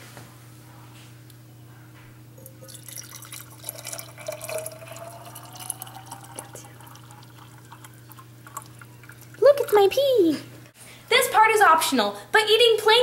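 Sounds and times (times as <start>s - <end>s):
syrup pouring into glass jar: 2.5s - 9.4s.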